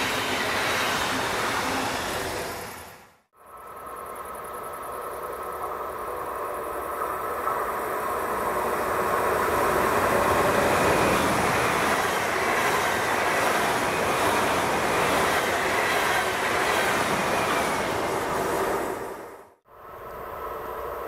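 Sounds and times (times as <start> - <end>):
train passing: 0.0 - 21.0.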